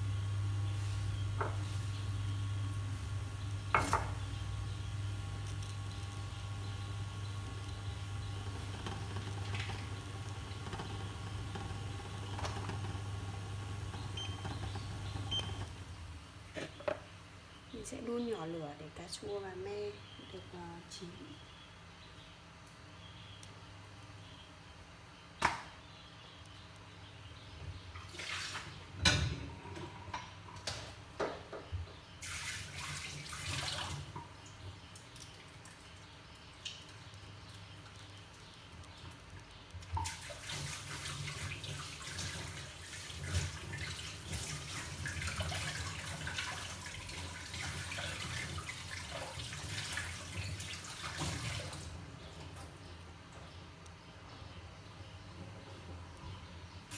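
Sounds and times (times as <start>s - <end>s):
cooktop humming: 0.0s - 21.1s, 35.4s - 54.2s
pot ticking: 1.4s - 15.8s.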